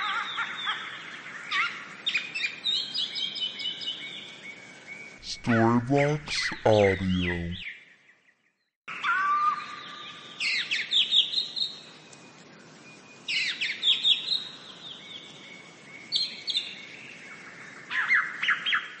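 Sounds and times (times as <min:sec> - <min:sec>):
faint steady background hiss: 0:05.2 - 0:07.6.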